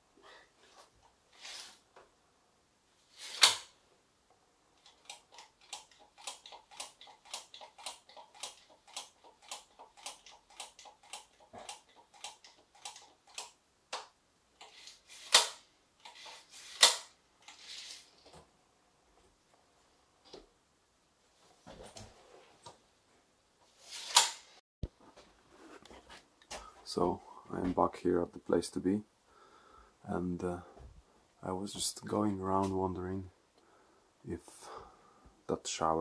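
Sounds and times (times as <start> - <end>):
ratchet-like clicks: 4.8 - 13.6, 14.6 - 17.8.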